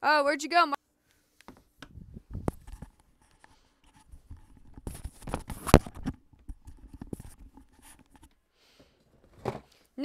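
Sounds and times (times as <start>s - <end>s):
fabric rustling and scraping: 1.2s - 8.3s.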